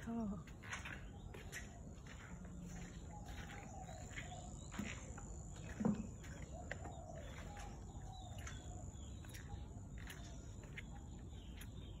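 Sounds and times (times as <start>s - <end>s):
bird chirps: 0.0s - 12.0s.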